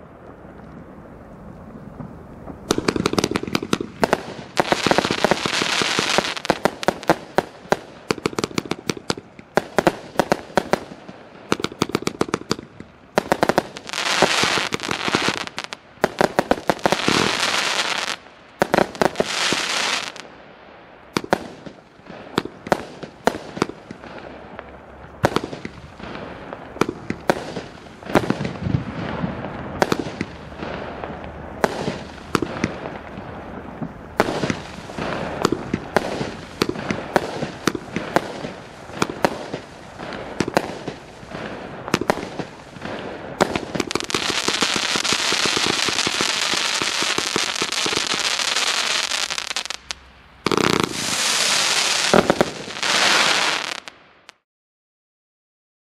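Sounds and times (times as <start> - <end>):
fireworks crackling: 0.0 - 54.4
fireworks launching and bursting: 1.9 - 54.4.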